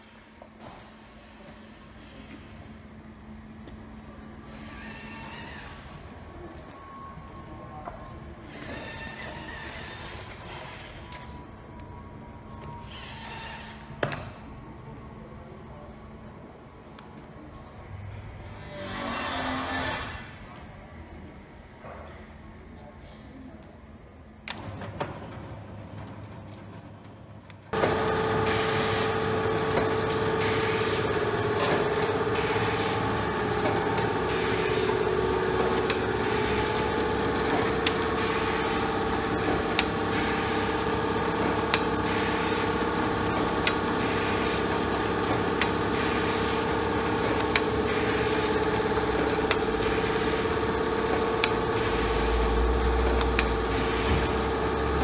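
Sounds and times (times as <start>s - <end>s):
machine running: 27.7s - 55.0s
mid-pitched hum: 27.8s - 55.0s.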